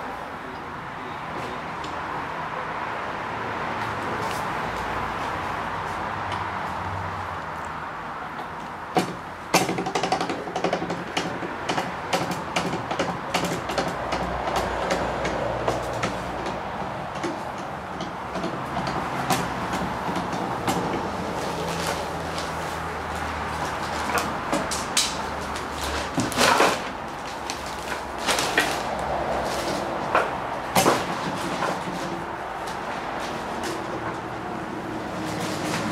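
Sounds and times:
workshop hum: 0.0 - 35.9.

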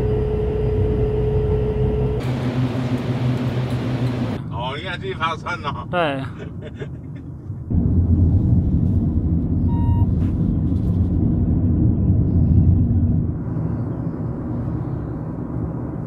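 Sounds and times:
car road and engine noise: 0.0 - 16.0
short beep: 9.7 - 10.2.

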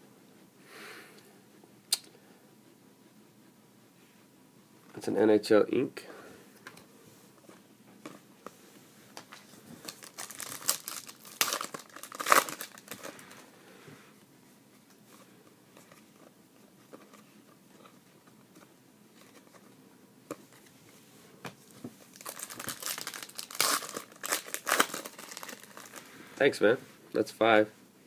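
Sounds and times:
foil wrapper crinkling and tearing: 9.8 - 13.3, 22.1 - 26.1.

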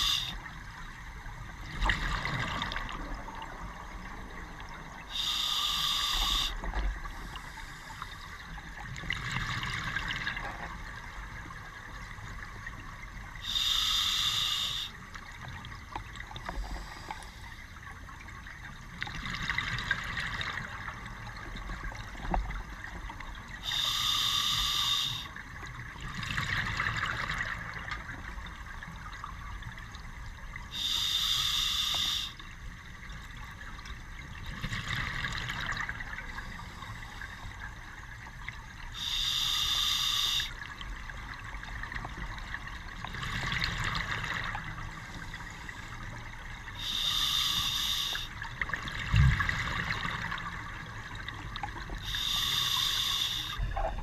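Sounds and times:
regulator inhalation hiss: 0.0 - 0.4, 5.1 - 8.3, 13.4 - 15.0, 23.6 - 25.3, 30.7 - 32.4, 39.0 - 40.6, 46.8 - 48.3, 52.0 - 53.6.

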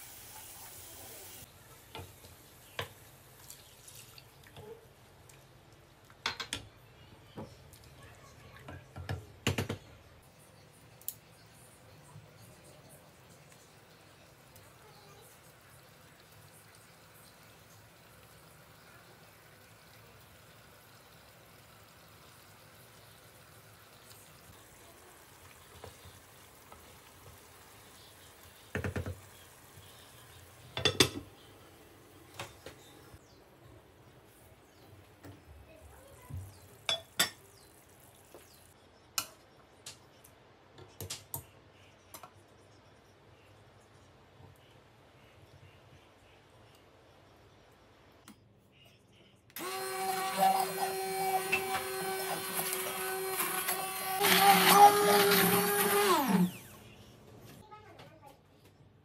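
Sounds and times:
cookware clattering: 30.8 - 31.3
hand blender humming: 49.6 - 56.7.

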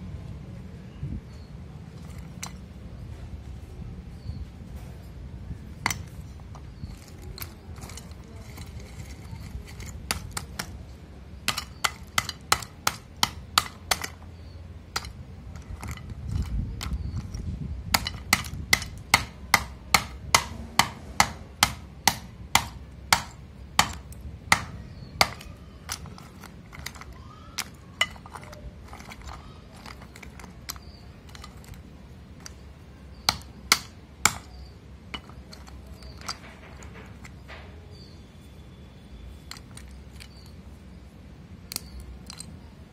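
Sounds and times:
pieces shifting rumble: 1.9 - 2.9, 5.7 - 19.4, 22.6 - 37.9, 39.3 - 40.8, 41.7 - 42.9
hard clay pieces clicking: 2.0 - 2.8, 5.7 - 37.8, 39.3 - 40.8, 41.6 - 42.9.

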